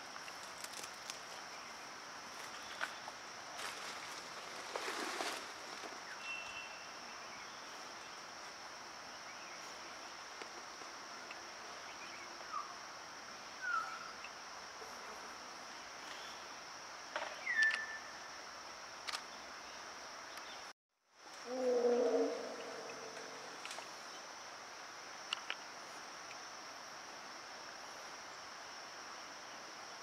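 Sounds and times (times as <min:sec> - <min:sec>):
insect chirps: 0:00.0 - 0:30.0.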